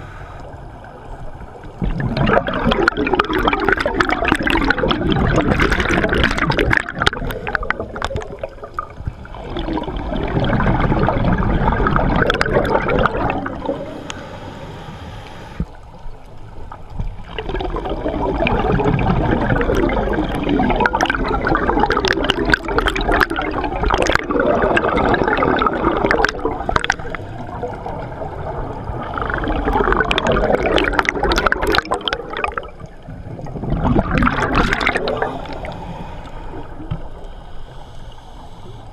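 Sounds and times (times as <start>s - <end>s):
gurgling exhaled bubbles: 0.8s - 14.3s, 15.6s - 37.4s
regulator inhalations: 13.6s - 15.8s, 35.1s - 38.9s.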